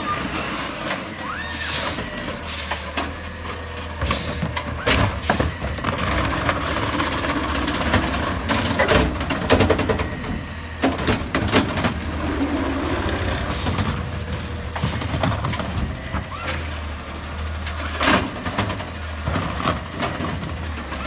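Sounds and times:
truck engine running: 0.0s - 21.0s
clanks and knocks of cart: 1.9s - 12.7s, 14.7s - 16.7s, 17.4s - 21.0s.

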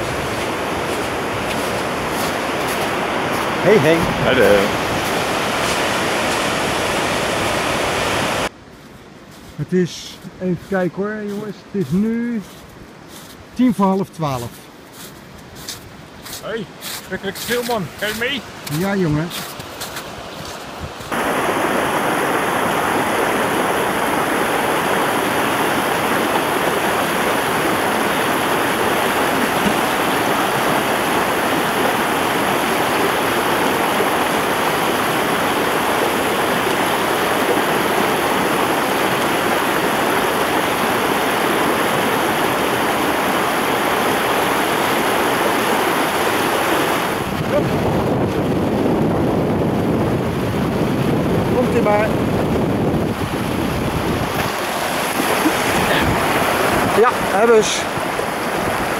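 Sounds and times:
mountain stream rushing over rocks: 0.0s - 8.5s, 16.4s - 49.1s, 49.9s - 58.9s.

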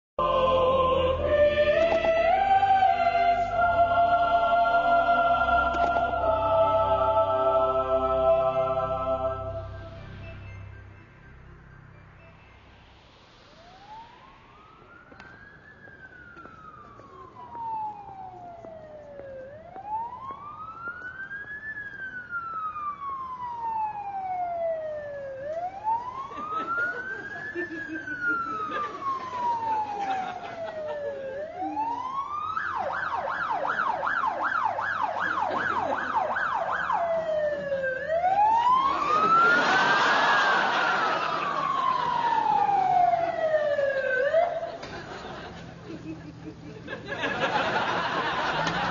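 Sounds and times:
ambulance siren wailing and yelping: 0.2s - 10.4s, 12.9s - 45.8s
rushing noise: 0.2s - 16.3s.

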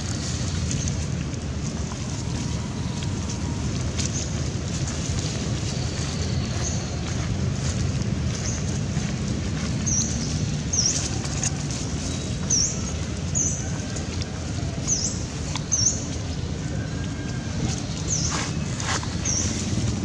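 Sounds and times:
wind rumbling on microphone: 0.0s - 20.0s.

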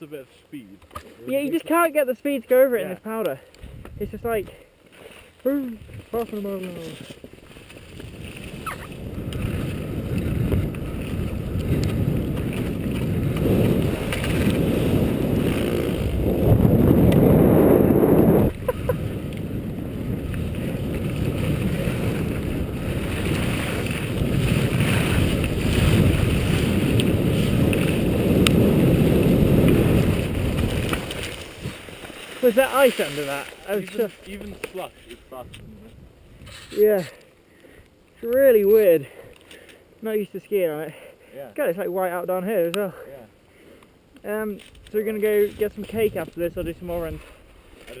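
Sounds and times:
wind rushing over microphone: 3.6s - 4.4s, 7.5s - 33.6s, 34.2s - 36.8s, 44.8s - 47.3s
skis running over slushy snow: 4.8s - 17.5s, 18.7s - 35.4s.

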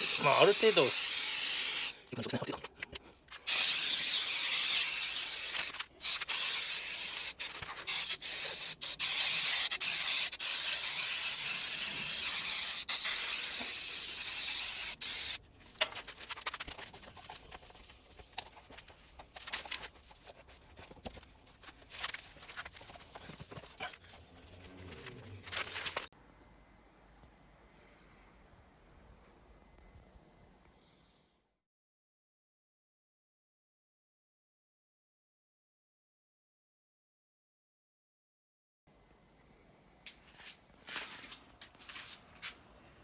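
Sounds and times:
aerosol spray hissing: 0.0s - 2.0s, 3.4s - 15.4s
rubbing sounds: 2.4s - 26.1s.

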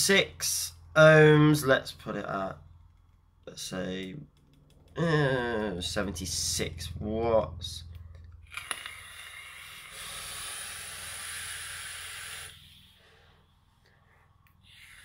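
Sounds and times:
air hiss through vape coil: 8.5s - 13.1s, 14.5s - 15.0s.

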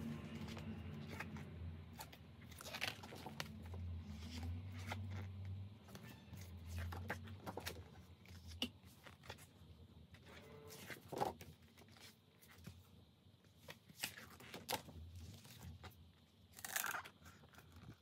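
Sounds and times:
calendar pages turning: 0.0s - 12.9s.

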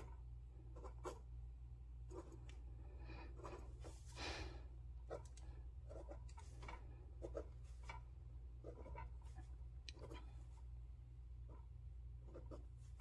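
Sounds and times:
pen scratching on paper: 0.0s - 1.3s, 2.1s - 2.5s, 3.2s - 4.1s, 5.0s - 10.6s, 11.4s - 13.0s
steady low hum: 0.0s - 13.0s.

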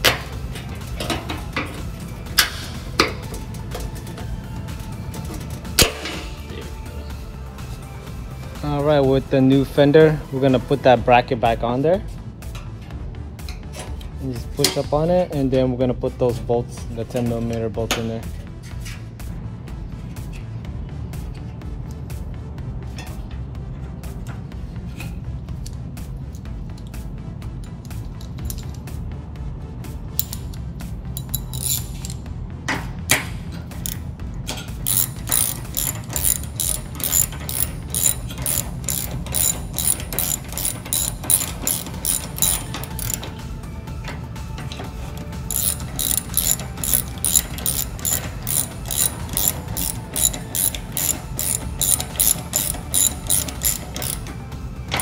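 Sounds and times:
hand ratchet clicking: 30.2s - 30.6s, 31.2s - 32.2s, 33.1s - 34.1s, 34.8s - 43.4s, 45.1s - 55.0s.

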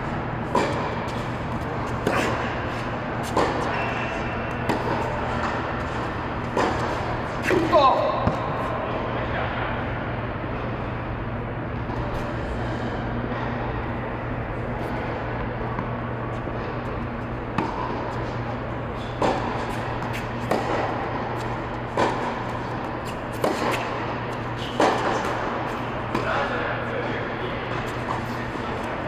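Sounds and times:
steady low hum: 0.0s - 29.0s
racket striking tennis ball: 0.4s - 8.7s, 15.8s - 18.4s, 19.0s - 26.5s
tennis ball bouncing: 0.4s - 8.7s, 14.8s - 27.1s, 27.7s - 29.0s.

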